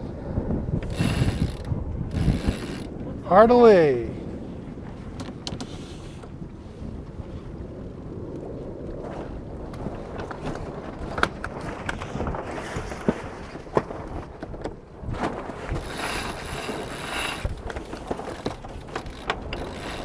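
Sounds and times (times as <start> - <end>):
winch ratcheting clicks: 0.8 - 2.9, 15.8 - 20.0.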